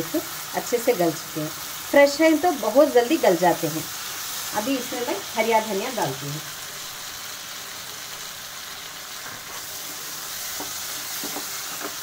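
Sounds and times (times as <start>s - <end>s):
peas and spices sizzling in pan: 0.0s - 12.0s
wooden spatula scraping pan: 9.2s - 12.0s.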